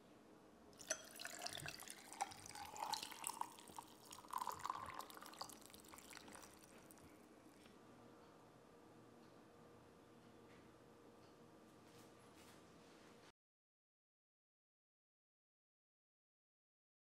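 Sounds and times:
tea pouring into glass: 0.8 - 7.1.

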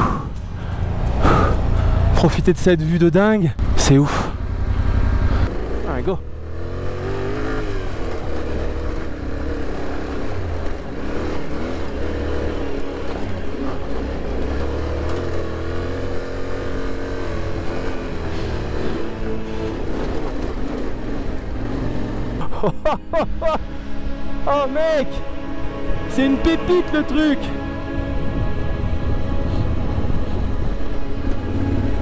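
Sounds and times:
motorcycle engine pulling uphill: 0.0 - 23.7, 28.2 - 32.0.

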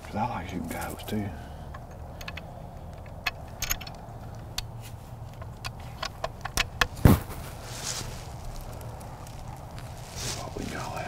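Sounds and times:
rifle handling clicks and knocks: 0.7 - 7.2
loud thump: 7.0 - 7.5.

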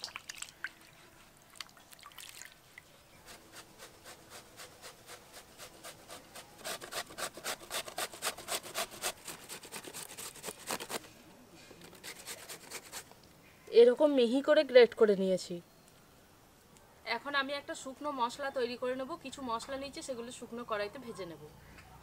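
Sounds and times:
mango rasping on metal grater: 3.2 - 11.0, 11.8 - 13.1.

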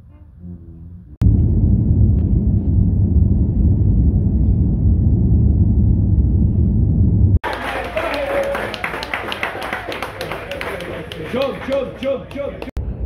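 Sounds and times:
airliner cabin rumble: 1.2 - 7.4.

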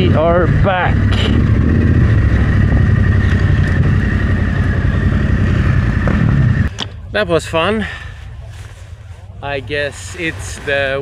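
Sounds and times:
motorcycle engine running: 0.0 - 6.7.

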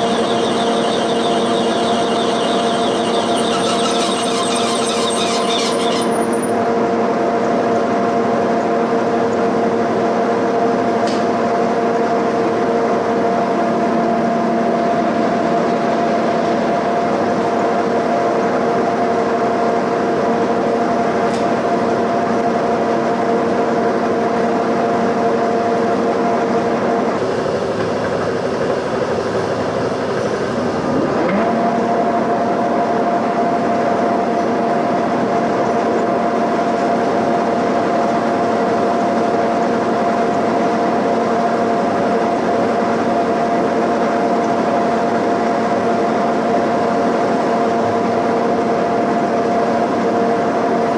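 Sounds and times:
milling machine cutting metal: 0.0 - 6.6
rising machine whine: 0.0 - 7.1.

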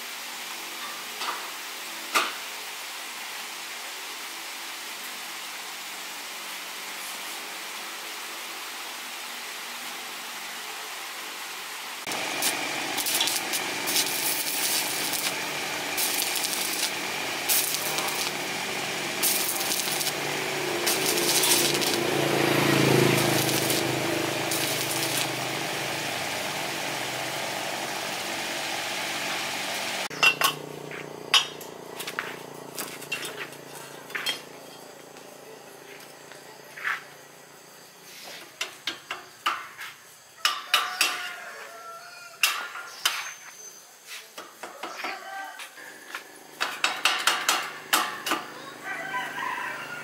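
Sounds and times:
steady hiss: 0.0 - 30.1
small power tool running: 12.0 - 33.6.

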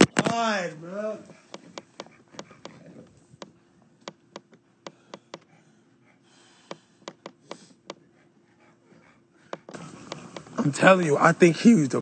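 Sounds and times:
faint hum: 0.0 - 12.0
faint sharp clicks and taps: 1.3 - 5.5, 6.6 - 8.1, 9.4 - 10.6.

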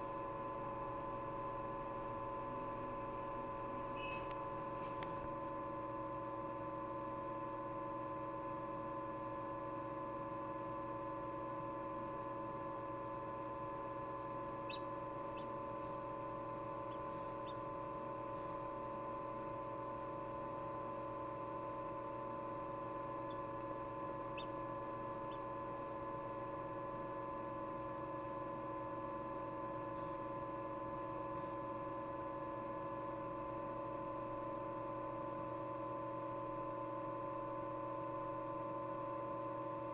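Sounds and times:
incubator motor hum: 0.0 - 39.9
chick peeping: 14.6 - 16.0, 16.8 - 17.8, 23.2 - 23.6, 24.3 - 24.6, 25.2 - 25.5.

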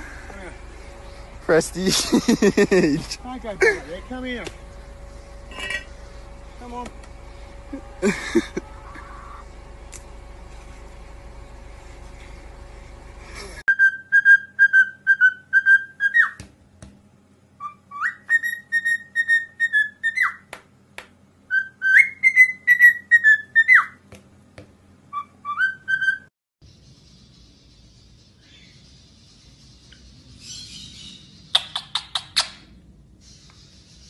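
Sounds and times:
cockatiel whistling: 13.7 - 16.4, 17.6 - 20.4, 21.5 - 24.0, 25.1 - 26.3.

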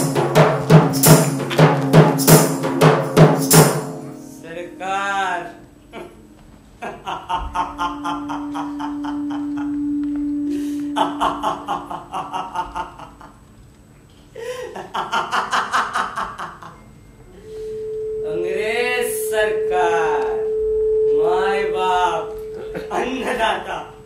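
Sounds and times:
steady background tone: 0.0 - 13.4, 16.5 - 24.0
man laughing theatrically: 6.8 - 9.8, 11.0 - 13.4, 14.4 - 16.7.

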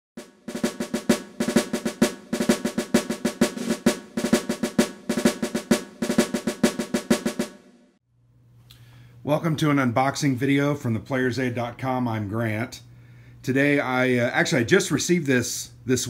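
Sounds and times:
rapid snare drum cadence: 0.2 - 7.8.

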